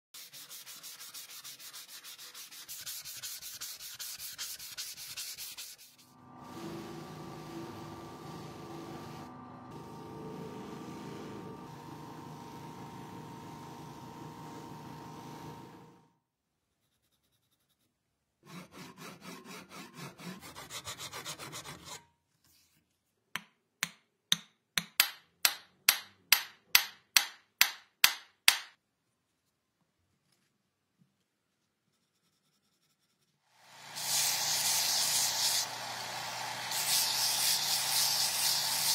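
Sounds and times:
sanding sponge rubbing wood: 0.2s - 6.2s, 18.5s - 22.0s, 32.0s - 38.9s
machine humming: 6.1s - 16.1s, 34.0s - 38.3s
abrasive tool rubbing wood: 33.8s - 38.9s.

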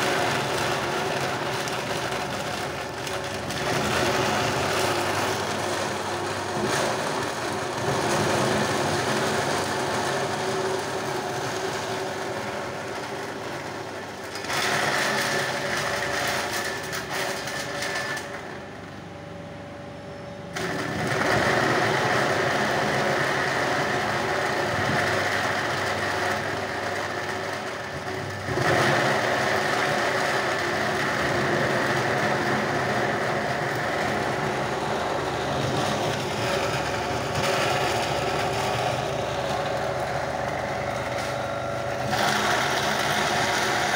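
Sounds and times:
foam shredding machine running: 0.0s - 43.9s.

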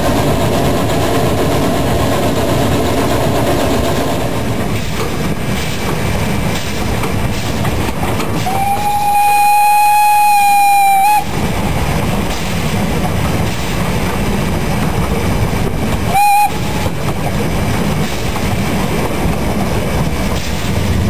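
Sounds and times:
steam locomotive rumbling: 0.0s - 21.0s
steam whistle blast: 8.4s - 11.3s, 16.1s - 16.8s.

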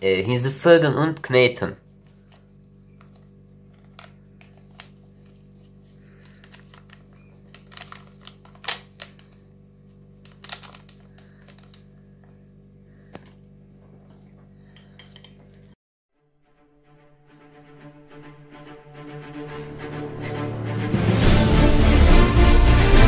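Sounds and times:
faint steady hum: 0.0s - 15.8s
sachet crinkling and tearing: 1.9s - 12.0s.

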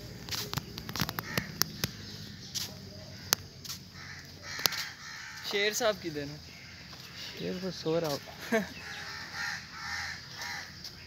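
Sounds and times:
birds calling faintly: 0.0s - 11.0s
sharp irregular clicks and taps: 0.3s - 2.0s, 4.6s - 4.9s.

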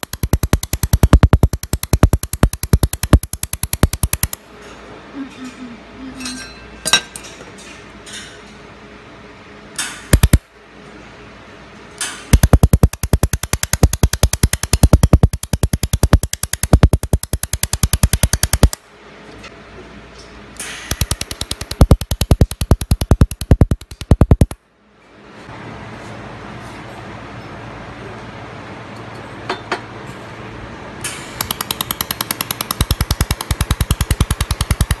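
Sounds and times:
laser welding snaps: 0.0s - 4.4s, 9.8s - 10.5s, 12.0s - 18.8s, 20.6s - 24.6s, 31.0s - 35.0s.

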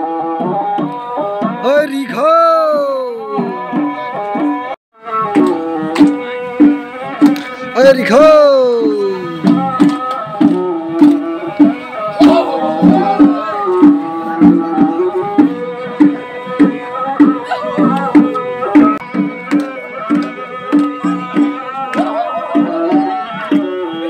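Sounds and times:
drum beating quick rhythm: 5.2s - 24.0s.

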